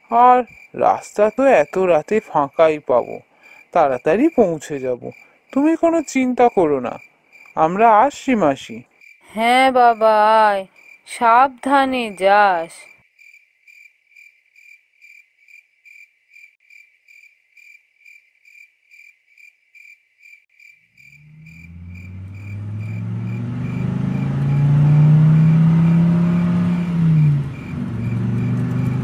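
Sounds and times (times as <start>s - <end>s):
crickets chirping: 0.0s - 29.0s
car engine driving: 21.1s - 29.0s.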